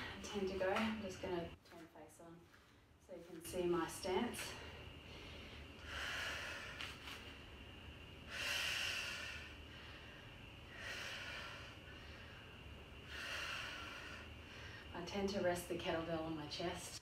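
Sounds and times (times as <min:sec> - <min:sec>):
woman breathing hard: 0:00.0 - 0:00.3, 0:04.5 - 0:07.4, 0:08.2 - 0:15.0.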